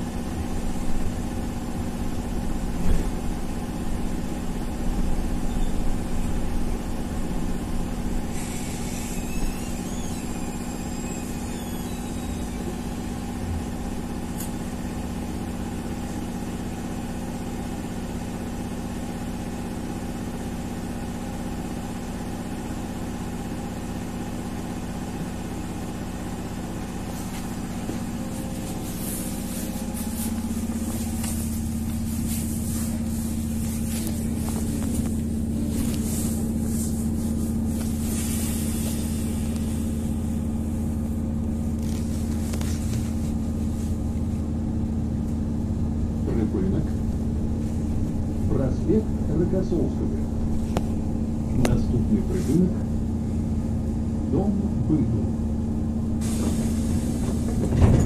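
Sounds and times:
electric hum and rumble: 0:00.0 - 0:58.0
high squeal: 0:08.3 - 0:13.0.

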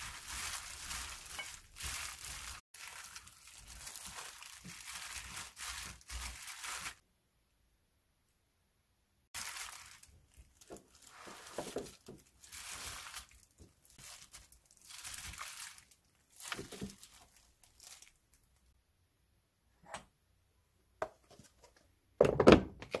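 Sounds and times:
food cubes shifting and dropping: 0:00.0 - 0:07.0
plastic glove crinkling: 0:00.0 - 0:07.0, 0:09.4 - 0:18.7.

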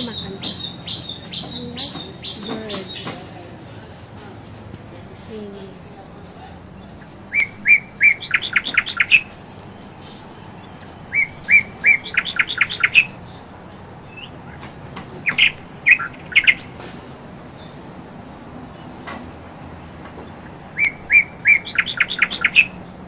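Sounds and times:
bird singing whistled notes: 0:00.0 - 0:03.1, 0:07.0 - 0:13.2, 0:15.2 - 0:16.7, 0:20.7 - 0:22.8.

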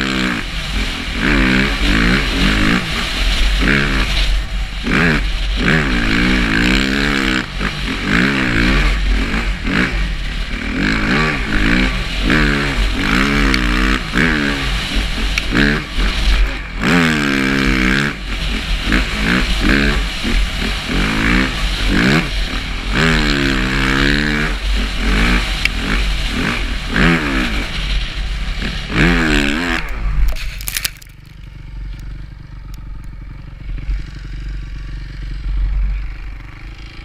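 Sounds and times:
dirt bike engine revving: 0:00.0 - 0:37.0
low rumble: 0:00.0 - 0:37.0
scattered clicks: 0:29.7 - 0:33.2.

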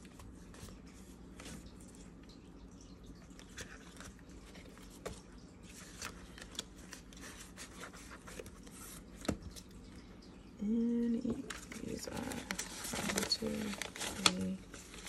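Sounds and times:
banknotes and plastic pockets rustling: 0:11.6 - 0:15.0.

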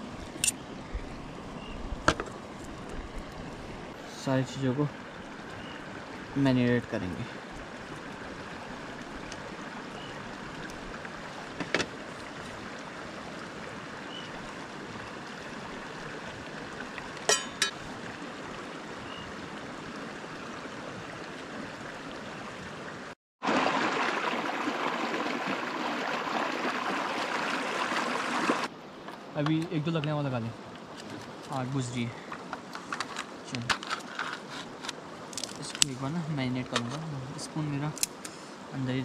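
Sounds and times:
river water flowing: 0:00.0 - 0:39.0.

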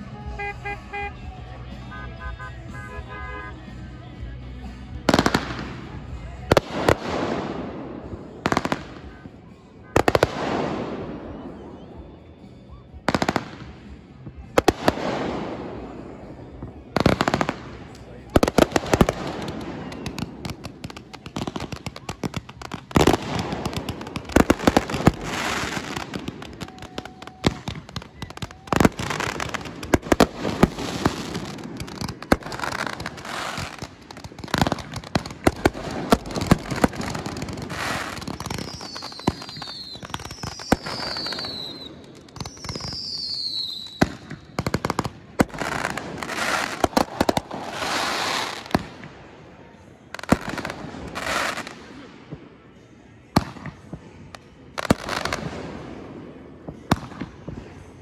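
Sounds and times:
fireworks bangs and crackling: 0:00.0 - 0:58.0
falling firework whistles: 0:35.5 - 0:44.5.

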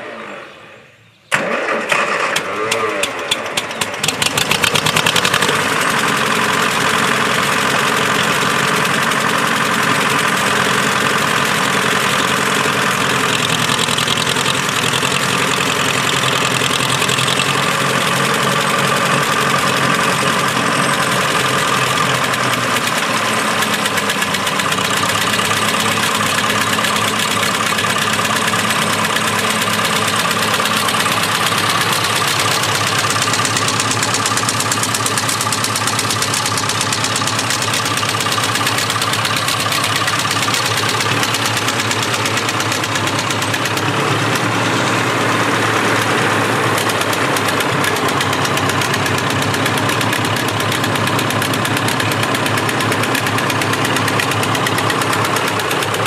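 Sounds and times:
tractor engine idling: 0:01.3 - 0:56.0.

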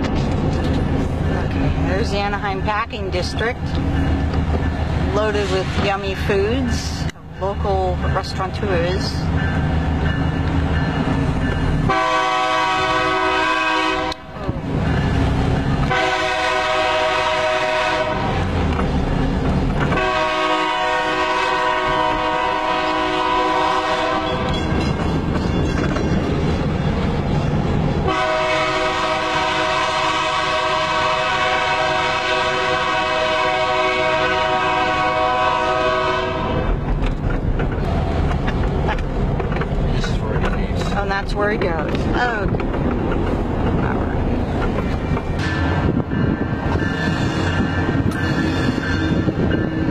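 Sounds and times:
train and road rumble: 0:00.0 - 0:49.9
locomotive air horn blasts: 0:11.9 - 0:14.4, 0:15.9 - 0:18.5, 0:19.9 - 0:24.6, 0:28.0 - 0:36.8.

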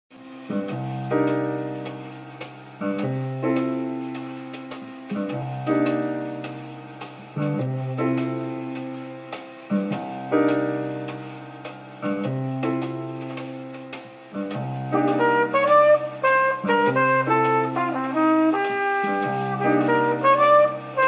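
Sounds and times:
jazz music over loudspeakers: 0:00.1 - 0:21.0.

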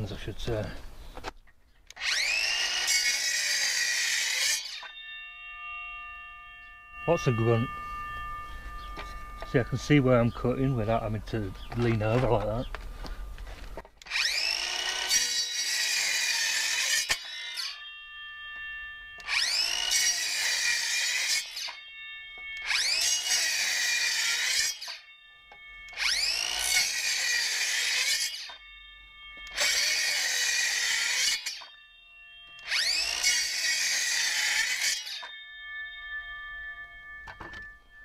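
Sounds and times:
circular saw cutting wood: 0:01.9 - 0:38.0.

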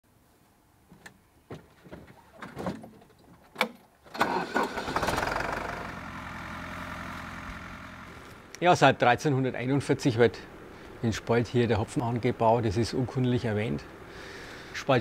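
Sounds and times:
tractor diesel engine starting and idling: 0:04.1 - 0:09.2.

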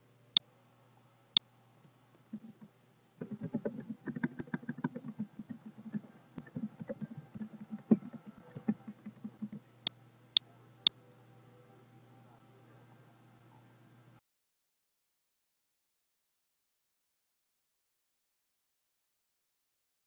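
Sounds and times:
computer keyboard typing: 0:02.4 - 0:09.6.

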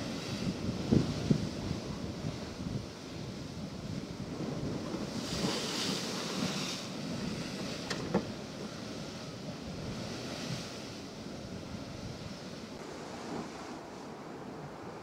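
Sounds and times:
wind on microphone: 0:00.0 - 0:15.0
surf breaking on rocks: 0:04.2 - 0:11.0.

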